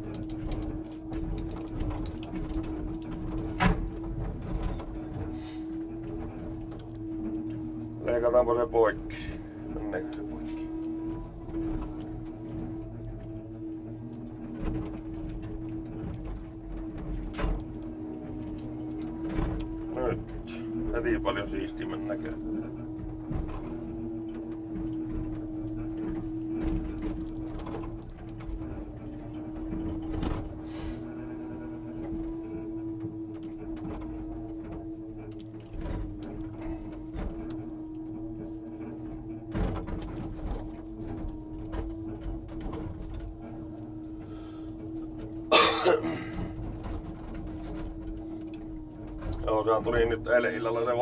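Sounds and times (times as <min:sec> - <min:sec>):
truck engine running: 0:00.0 - 0:27.5, 0:28.3 - 0:33.7, 0:34.3 - 0:51.0.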